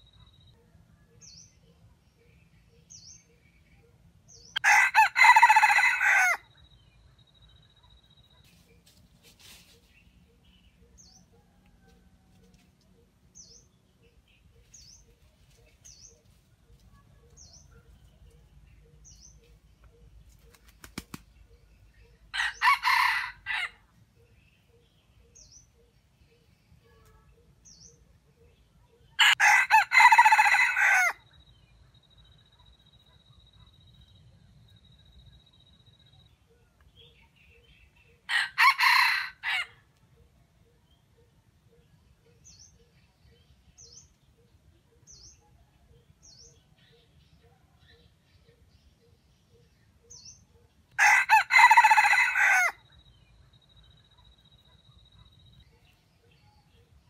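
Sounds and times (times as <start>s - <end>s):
rooster crowing: 4.6s - 6.4s, 22.4s - 23.8s, 29.2s - 31.2s, 38.3s - 39.7s, 51.0s - 52.8s.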